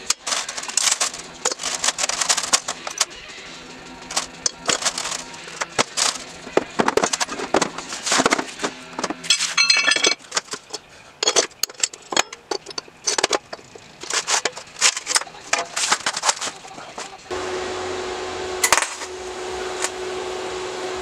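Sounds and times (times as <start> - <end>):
metal parts clinking and clattering: 0.0 - 3.3, 4.0 - 17.2
roller chain shifting in metal pan: 0.0 - 3.3, 4.0 - 8.6, 9.2 - 16.8
metal bits rattling in bucket: 0.0 - 17.2
steel camshafts knocking together: 4.0 - 7.8.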